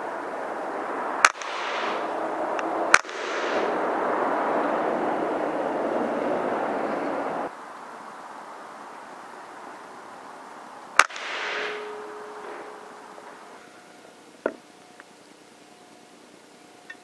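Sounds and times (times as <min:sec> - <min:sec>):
steady rushing noise: 0:00.0 - 0:17.0
air rifle cracks: 0:01.2 - 0:02.0, 0:02.6 - 0:03.5, 0:11.0 - 0:11.9.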